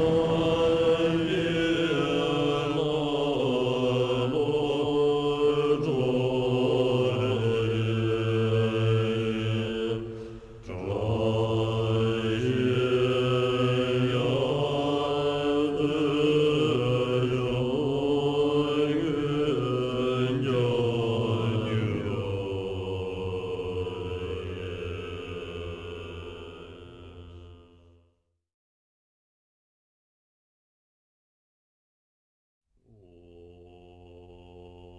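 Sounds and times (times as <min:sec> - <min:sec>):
monks chanting in low tones: 0:00.0 - 0:27.8, 0:32.9 - 0:34.9.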